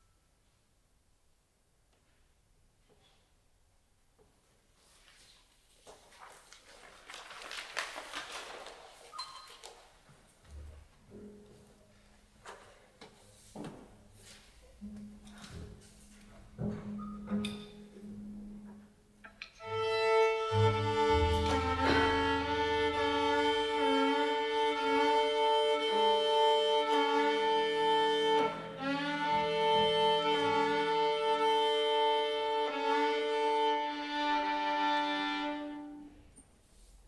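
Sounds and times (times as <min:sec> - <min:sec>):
low sustained note: 0:20.4 - 0:24.4.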